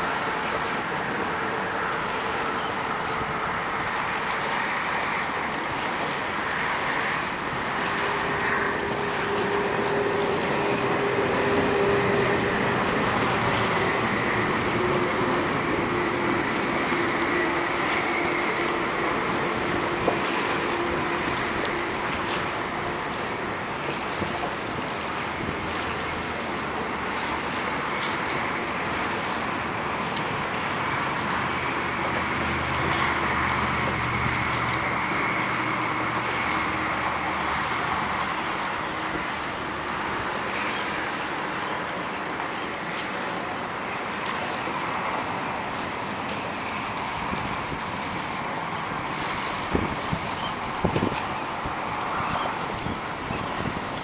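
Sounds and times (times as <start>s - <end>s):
waves washing: 0.0s - 54.0s
wind buffeting microphone: 44.7s - 54.0s.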